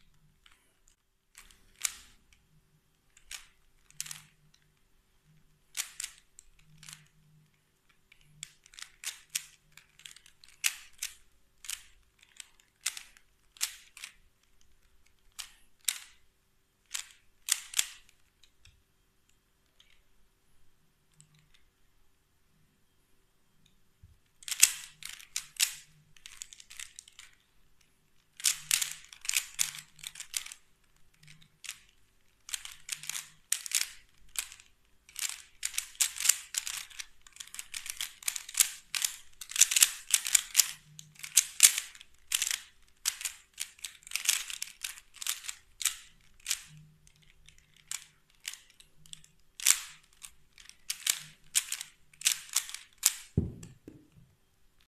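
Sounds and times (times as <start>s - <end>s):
puzzle cube plastic clicks: 0.1s - 20.1s, 23.6s - 54.3s
low thump: 53.4s - 54.1s.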